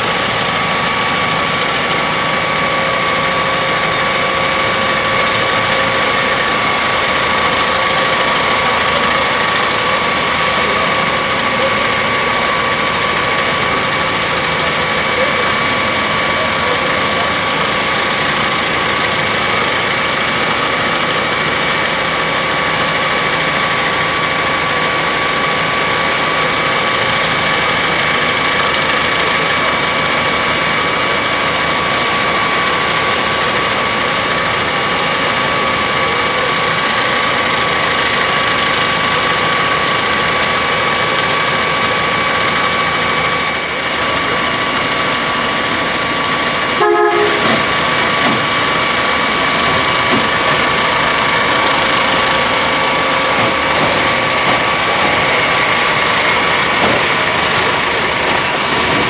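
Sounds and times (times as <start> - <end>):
rail machine engines idling: 0.0 - 59.0.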